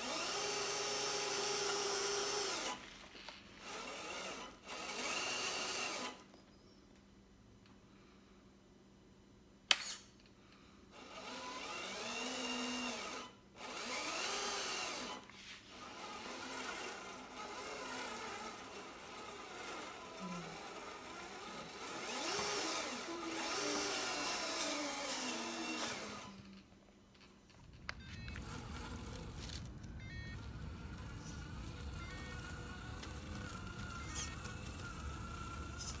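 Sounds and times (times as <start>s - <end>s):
electric motor whining: 0.0s - 3.0s, 3.6s - 6.2s, 11.1s - 26.6s, 27.5s - 36.0s
steady low noise: 27.4s - 36.0s.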